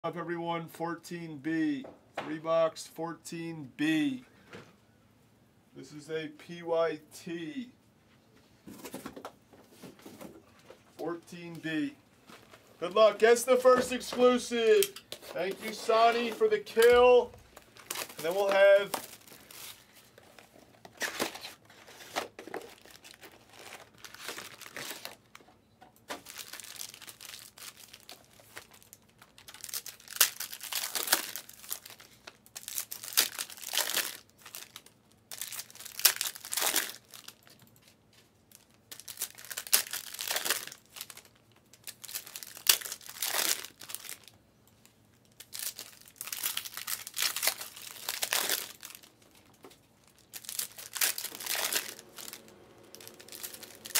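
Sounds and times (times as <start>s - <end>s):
card pack wrappers tearing: 13.0s - 25.3s, 26.1s - 37.6s, 38.5s - 44.3s, 45.2s - 53.9s.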